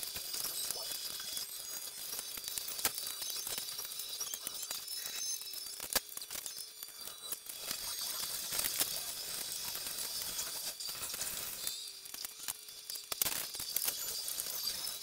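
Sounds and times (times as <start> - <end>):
plastic pieces clicking and clattering: 0.0 - 15.0.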